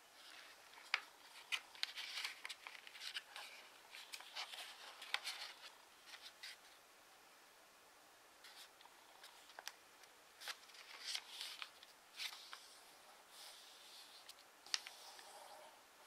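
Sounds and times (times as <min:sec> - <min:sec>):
paper rustling and crackling: 0:00.2 - 0:06.8, 0:10.4 - 0:15.4
crisp paper crease clicks: 0:00.3 - 0:06.6.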